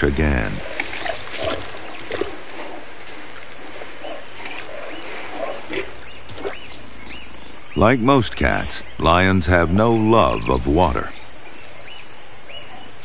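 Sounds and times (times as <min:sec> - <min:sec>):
water splashing: 0:00.0 - 0:07.1
steady background hiss: 0:00.0 - 0:13.0
animal calls: 0:00.5 - 0:07.6.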